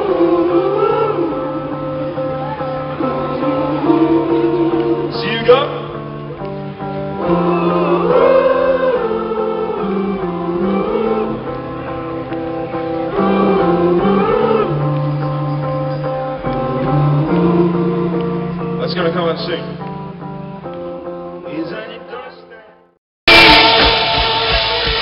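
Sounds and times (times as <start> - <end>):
voices singing: 0.0 - 6.4, 7.0 - 19.6
live band music over speakers: 0.0 - 20.8, 23.3 - 25.0.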